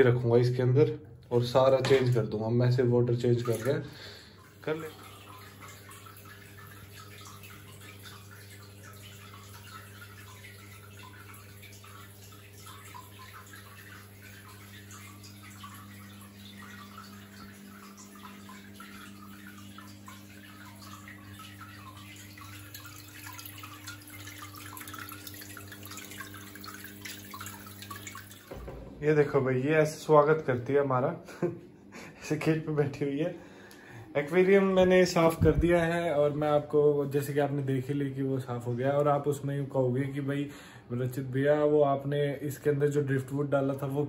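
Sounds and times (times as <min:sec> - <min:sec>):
pump humming: 0:01.3 - 0:30.4, 0:33.4 - 0:38.0
water trickling and bubbling: 0:01.4 - 0:30.1, 0:34.2 - 0:39.6.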